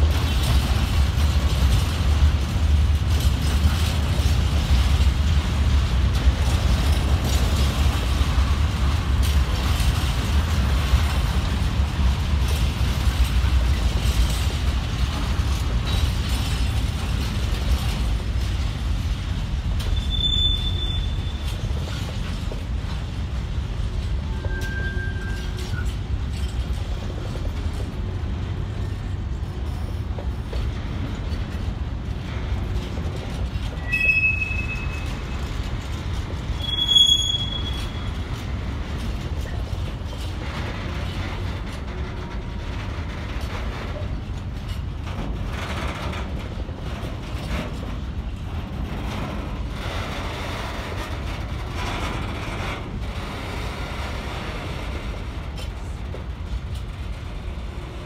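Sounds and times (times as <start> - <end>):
rumble of wheels on rail: 0.0 - 58.0
high wheel squeals: 19.9 - 21.5, 24.3 - 25.9, 33.8 - 35.3, 36.6 - 38.2.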